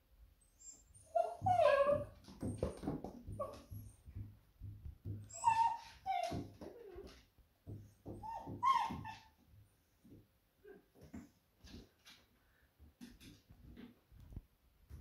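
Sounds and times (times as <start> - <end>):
dog whining: 0.5 - 4.1, 5.2 - 7.2, 8.1 - 9.4
soft regular tapping: 2.4 - 5.7.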